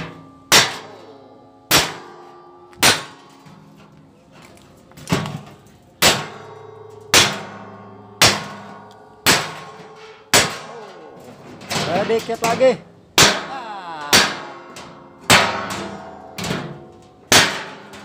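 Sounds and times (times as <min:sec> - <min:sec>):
hammer striking steel blade: 0:00.0 - 0:03.6, 0:06.0 - 0:10.8
metal drum ringing: 0:00.0 - 0:04.2, 0:05.0 - 0:18.0.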